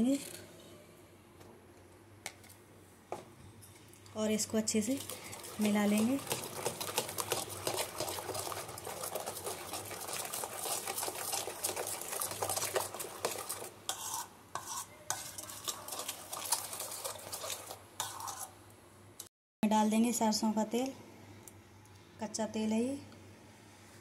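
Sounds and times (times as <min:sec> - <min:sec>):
metal spoon scraping a bowl: 0:05.0 - 0:18.6.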